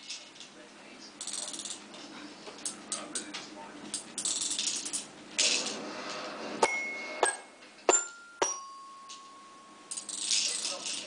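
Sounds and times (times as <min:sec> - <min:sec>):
small hard objects clinking: 0:09.9 - 0:11.0.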